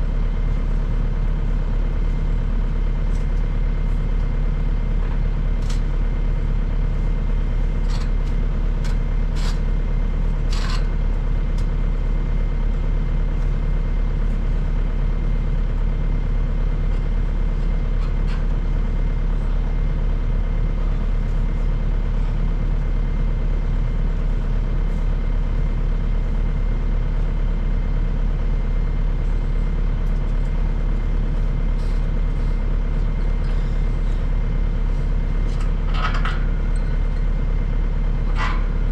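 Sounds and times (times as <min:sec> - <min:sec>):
loader engine idling: 0:00.0 - 0:38.9.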